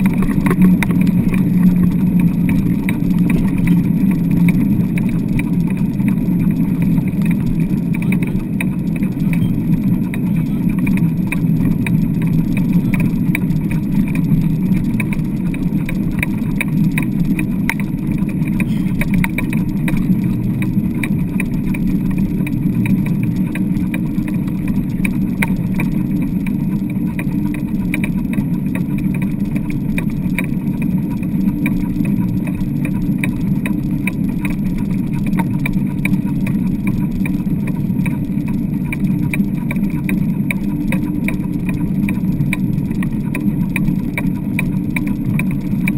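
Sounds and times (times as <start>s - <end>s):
faint rattling ticks: 0.0s - 45.9s
wheels rumbling over wet sand: 0.0s - 45.9s.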